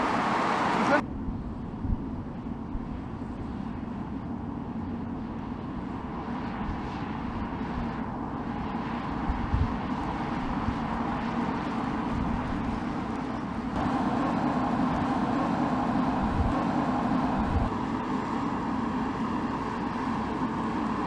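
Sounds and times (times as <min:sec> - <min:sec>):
car engine and tyre noise: 0:00.0 - 0:21.0.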